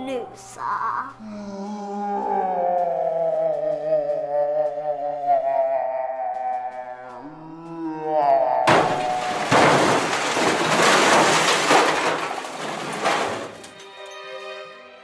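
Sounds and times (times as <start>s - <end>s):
crash of breaking glass: 8.7s - 14.1s.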